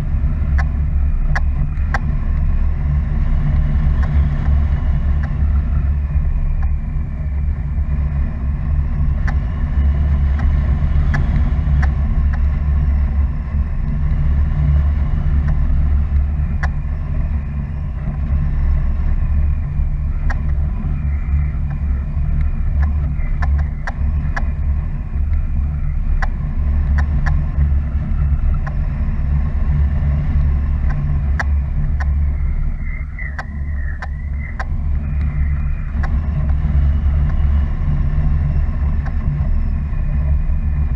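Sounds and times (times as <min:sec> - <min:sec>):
wind rumbling on microphone: 0:00.0 - 0:40.9.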